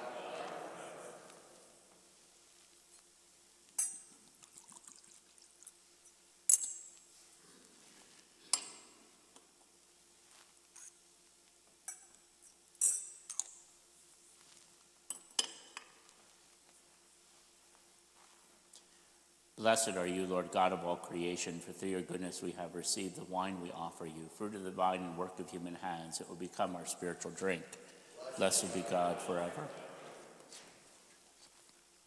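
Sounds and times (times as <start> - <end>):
liquid pouring: 4.2 - 5.8.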